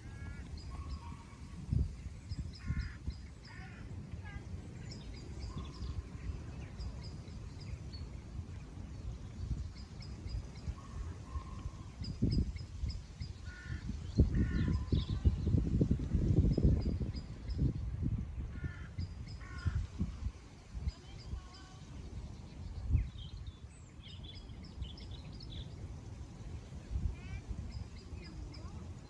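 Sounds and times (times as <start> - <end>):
harsh cawing bird calls: 0.0 - 1.4, 2.4 - 4.1, 13.4 - 15.4, 18.5 - 20.1
small birds chirping: 0.0 - 29.0.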